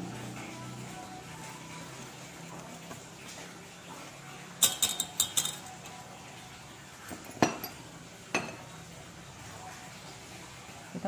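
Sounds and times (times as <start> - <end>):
metal spoon clinking on bowl: 4.6 - 6.0, 7.1 - 8.7.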